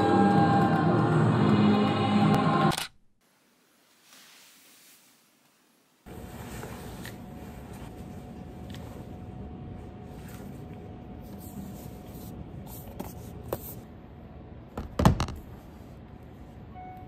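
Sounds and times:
laptop knocking on desk: 0:14.8 - 0:15.4.

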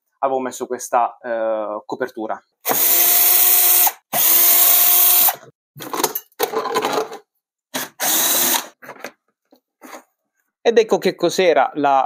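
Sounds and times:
cordless drill whining: 0:02.6 - 0:05.4, 0:07.8 - 0:08.8.

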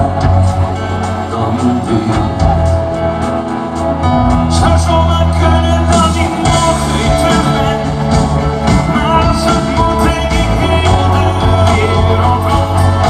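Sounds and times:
bass line: 0:00.0 - 0:13.0
live pop-rock band: 0:00.0 - 0:13.0
man singing: 0:04.3 - 0:13.0.

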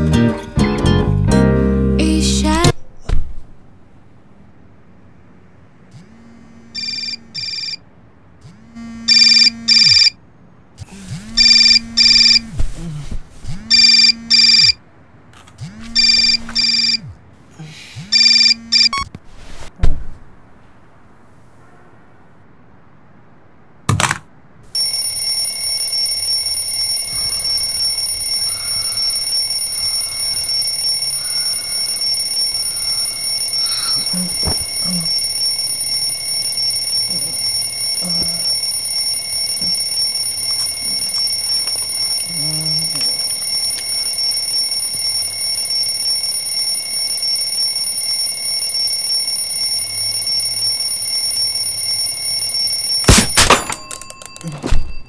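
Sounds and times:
alarm clock ringing: 0:06.8 - 0:07.8, 0:09.1 - 0:10.1, 0:11.4 - 0:12.4, 0:13.7 - 0:14.8, 0:16.0 - 0:17.0, 0:24.7 - 0:55.0.

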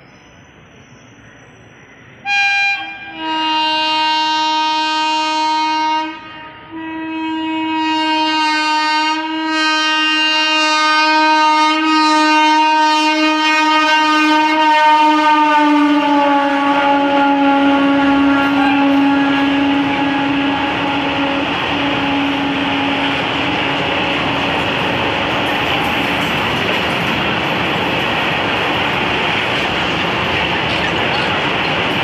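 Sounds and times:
locomotive horn blasts: 0:02.2 - 0:25.5.

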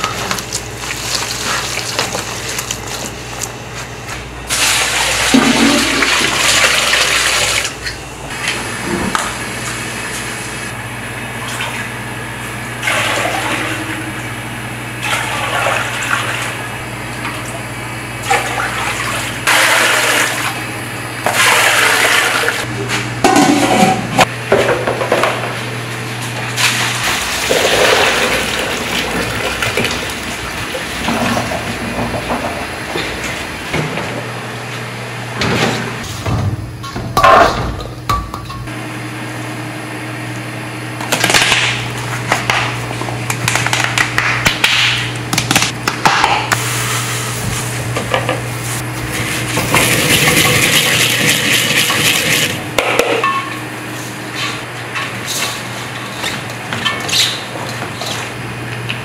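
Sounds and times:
vegetables mixed by hand: 0:00.0 - 0:06.7.

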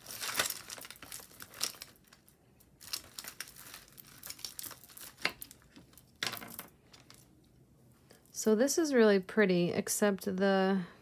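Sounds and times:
packaging crinkling and rustling: 0:00.0 - 0:07.3.

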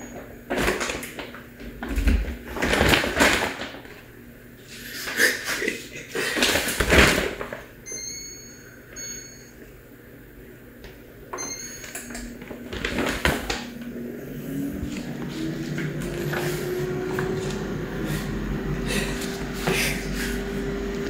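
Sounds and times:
clattering handling noise: 0:11.3 - 0:13.7.

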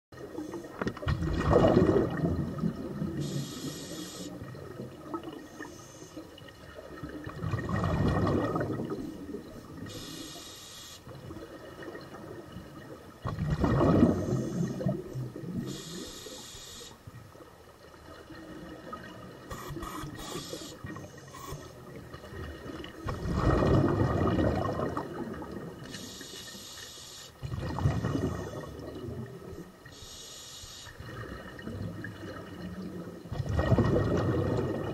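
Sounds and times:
bubbling underwater exhalations: 0:01.0 - 0:03.4, 0:07.2 - 0:09.8, 0:13.2 - 0:15.8, 0:23.0 - 0:25.8, 0:27.4 - 0:29.7, 0:31.0 - 0:34.9
regulator valve hiss: 0:03.2 - 0:04.4, 0:09.9 - 0:11.0, 0:15.7 - 0:17.0, 0:19.5 - 0:21.7, 0:25.9 - 0:27.4, 0:29.9 - 0:31.0.

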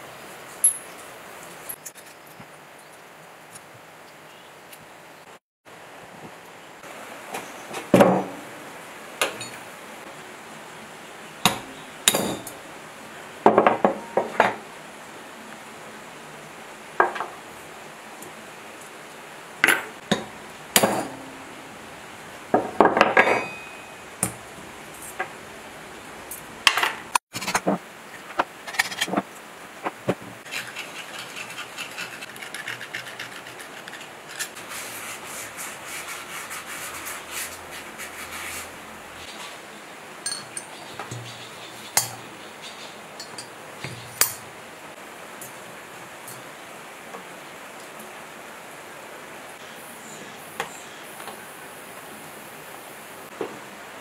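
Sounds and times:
hand brush scrubbing metal: 0:30.4 - 0:39.7.

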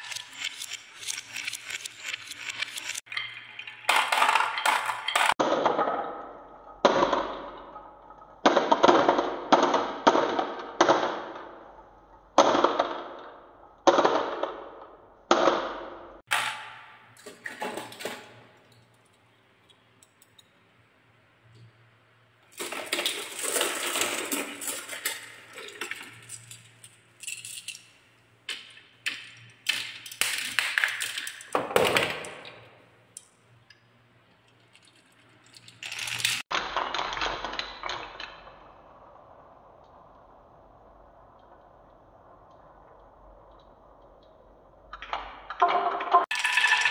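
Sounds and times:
marbles rolling on wooden tracks: 0:00.0 - 0:09.2, 0:22.4 - 0:46.9.

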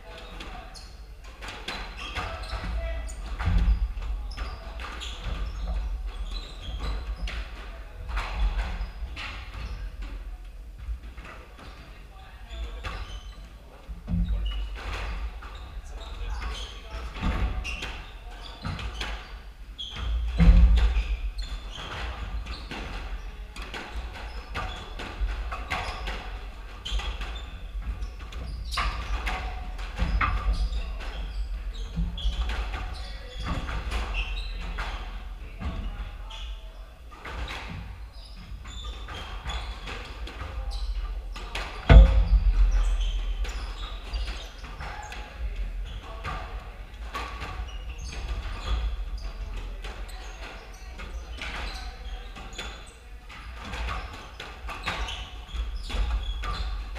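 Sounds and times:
squash ball knocking off walls: 0:39.0 - 0:49.2
loud thud: 0:41.9 - 0:44.3.

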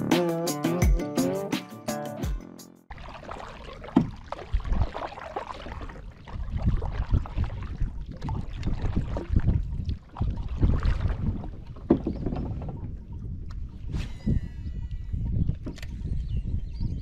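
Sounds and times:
paddle splashing in water: 0:02.9 - 0:13.7
paddle knocking against hull: 0:03.3 - 0:07.4, 0:10.2 - 0:12.8.

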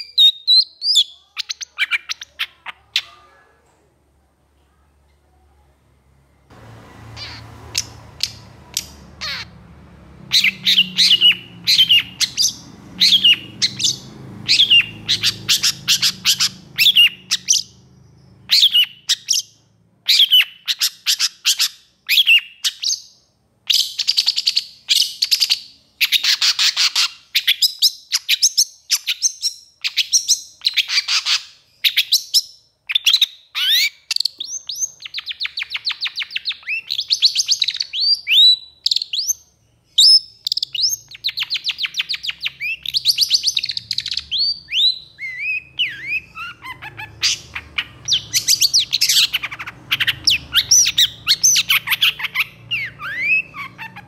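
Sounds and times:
bird singing sharp high notes: 0:06.9 - 0:21.2.

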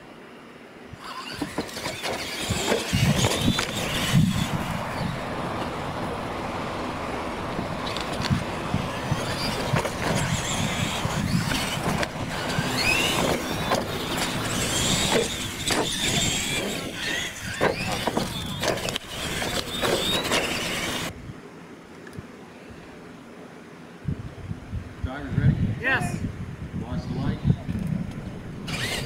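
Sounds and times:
toy truck motors whining: 0:01.0 - 0:05.7, 0:07.8 - 0:21.1, 0:28.6 - 0:29.0
tyres scrabbling on dirt: 0:01.0 - 0:21.1, 0:28.6 - 0:29.0.

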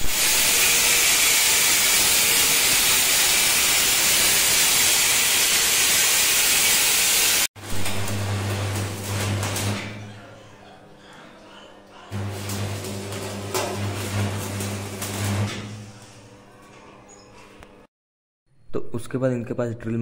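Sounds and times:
angle grinder cutting steel: 0:00.0 - 0:09.9
arc welding crackle and hum: 0:00.0 - 0:10.1, 0:12.1 - 0:16.4.

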